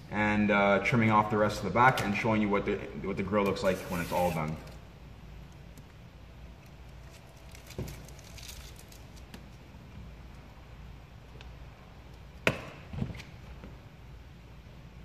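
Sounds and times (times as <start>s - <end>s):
vinyl film crinkling: 6.6s - 9.6s.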